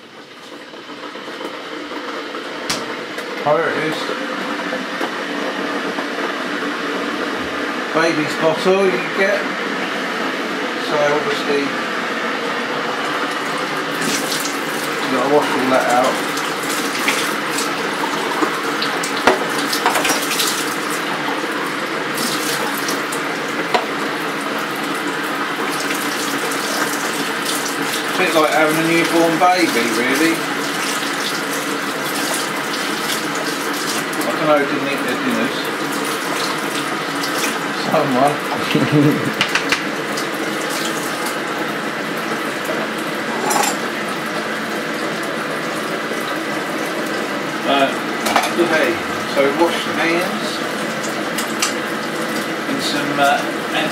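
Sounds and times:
tap water running into sink: 13.0s - 53.9s
hands washing under water: 13.4s - 21.1s
tap running into a sink: 15.4s - 20.6s, 23.6s - 24.0s, 39.2s - 41.4s.

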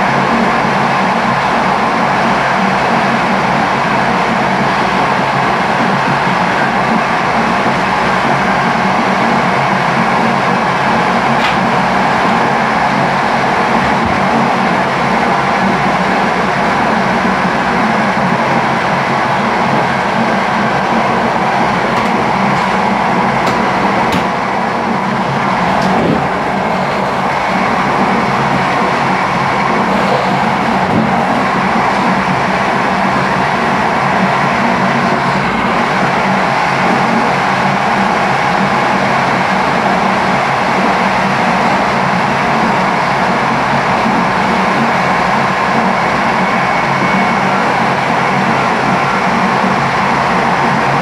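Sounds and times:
train wheels rumbling on track: 0.0s - 51.0s
low hum: 18.6s - 36.6s.

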